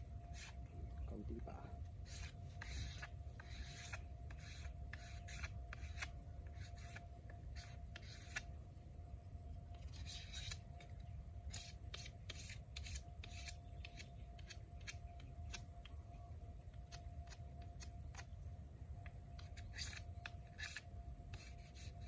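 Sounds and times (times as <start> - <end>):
knife scraping wooden stick: 0.2 - 0.7, 2.0 - 8.5, 9.7 - 15.6, 19.3 - 22.0.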